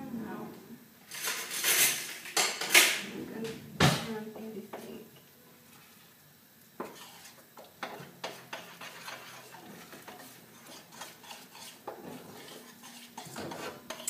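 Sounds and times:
utensil scraping a saucepan: 6.8s - 14.0s.

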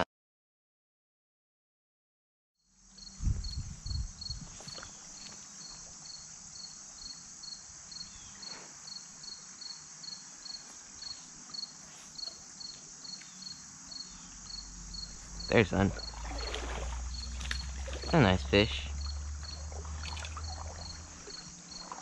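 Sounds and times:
insects chirping: 2.6s - 22.0s.

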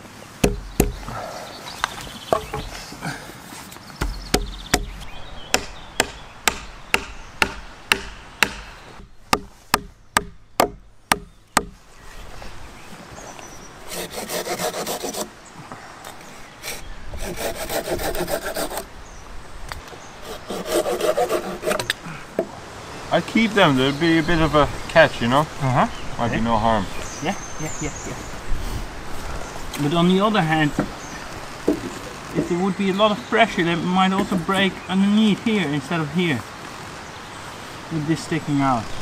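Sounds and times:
sharp wooden knocks: 0.4s - 1.1s, 2.3s - 2.7s, 4.0s - 11.8s, 31.6s - 32.6s
hand saw cutting wood: 13.9s - 15.3s, 16.6s - 18.9s, 20.2s - 22.0s.

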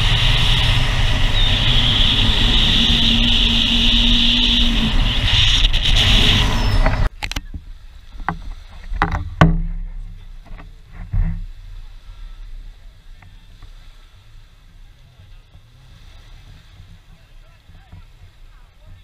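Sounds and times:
speedboat engine and water rush: 0.0s - 19.0s
sharp knocks and thuds: 6.9s - 11.5s.

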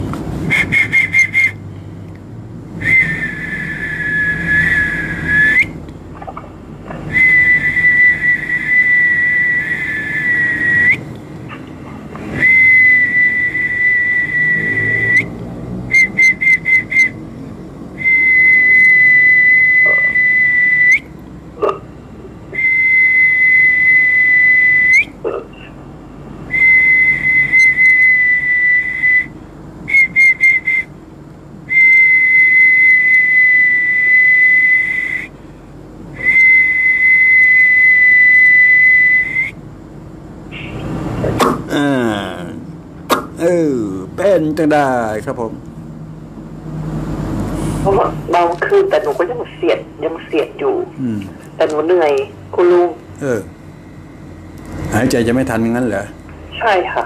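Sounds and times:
short staccato whistle toots: 0.4s - 1.6s, 18.1s - 21.1s, 43.1s - 43.4s
high whistling notes: 0.4s - 1.8s, 2.8s - 5.8s, 7.1s - 11.1s, 12.3s - 17.3s, 17.9s - 21.1s, 22.5s - 25.2s, 26.5s - 30.9s, 31.7s - 35.4s, 36.1s - 39.6s.

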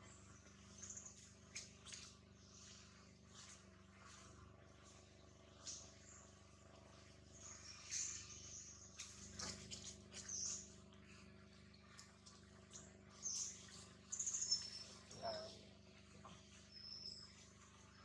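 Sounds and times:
birds chirping: 5.4s - 11.8s, 12.6s - 18.0s.

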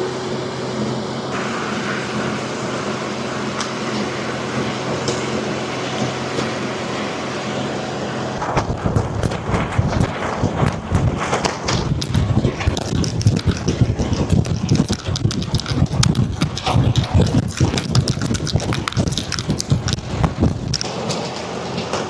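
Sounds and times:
wind machine drone: 0.0s - 22.0s
tent fabric flapping: 8.4s - 20.8s.

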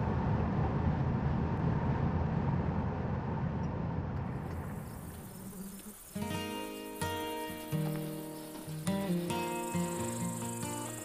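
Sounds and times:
vehicle cabin road rumble: 0.0s - 6.2s.

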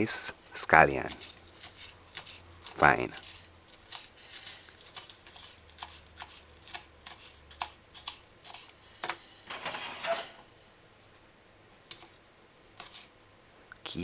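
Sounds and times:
rustling: 0.4s - 10.5s.

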